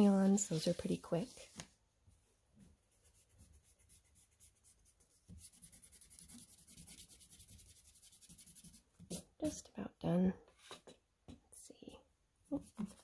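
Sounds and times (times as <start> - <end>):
eraser rubbing on paper: 2.9 - 9.3.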